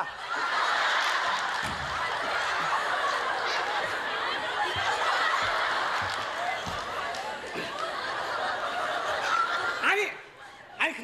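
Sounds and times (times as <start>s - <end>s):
audience laughing: 0.0s - 10.7s.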